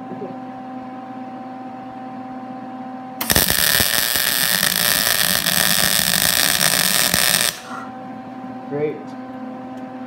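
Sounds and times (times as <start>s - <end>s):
welding arc crackling hiss: 3.2s - 7.8s.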